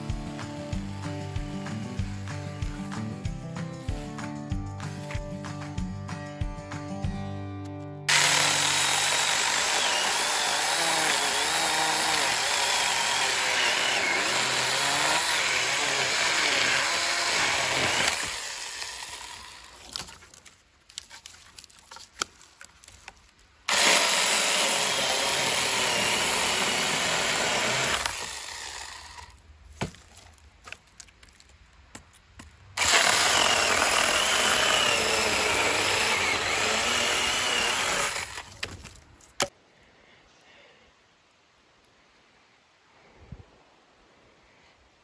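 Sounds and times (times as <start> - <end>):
electric chainsaw cutting logs: 0.0 - 4.3, 8.1 - 20.1, 23.7 - 29.4, 32.8 - 38.9.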